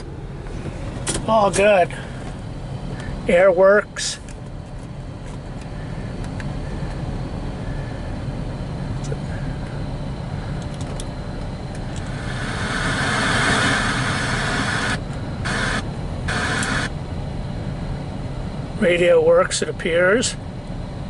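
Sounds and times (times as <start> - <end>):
air-conditioning blower: 0.0 - 21.0
idling car hum: 0.0 - 21.0
radio static hiss: 12.1 - 16.9.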